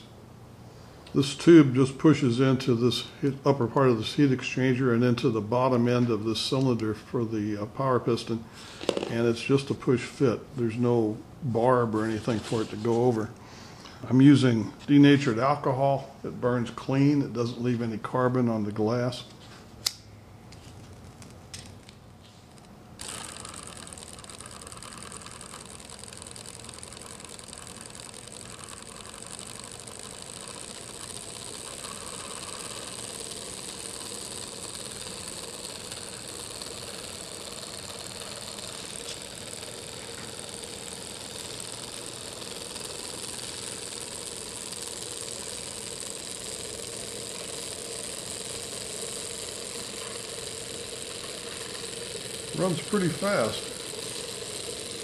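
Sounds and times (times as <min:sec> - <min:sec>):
small engine running fast: 0:23.0 - 0:55.0.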